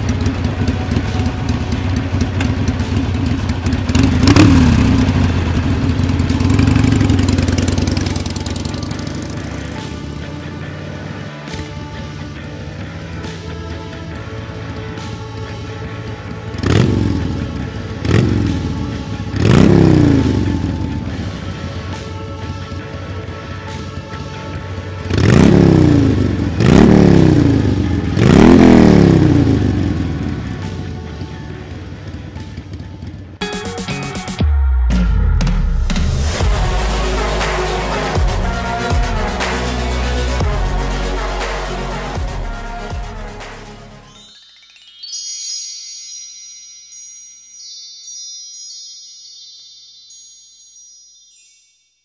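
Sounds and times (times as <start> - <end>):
motorcycle engine idling and revving: 0.0 - 44.0
electronic music: 33.4 - 45.2
high tinkling chimes: 43.7 - 52.0.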